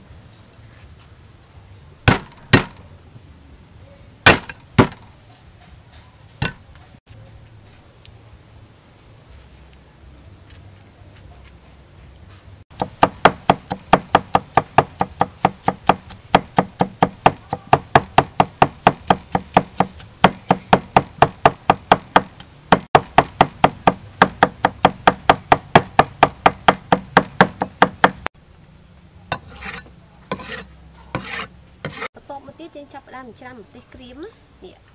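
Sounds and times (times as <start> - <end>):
cleaver chopping on wooden board: 2.1 - 2.8, 4.3 - 5.0, 12.8 - 28.3, 31.2 - 32.1.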